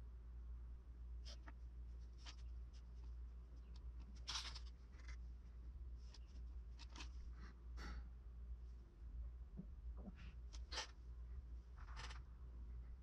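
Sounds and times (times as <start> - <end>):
steady low hum: 0.0 - 13.0
hands scratching and rubbing clay: 6.0 - 7.4.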